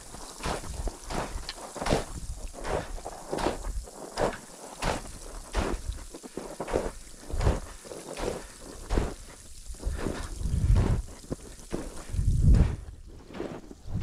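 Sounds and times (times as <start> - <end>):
boots crunching in snow: 0.0 - 14.0
wind buffeting microphone: 9.7 - 11.1, 12.0 - 13.1, 13.8 - 14.0.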